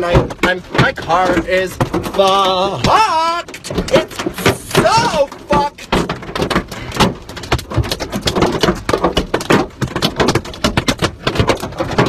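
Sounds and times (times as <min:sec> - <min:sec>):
person talking: 0:00.0 - 0:06.0
hail clattering on a car: 0:00.0 - 0:12.0.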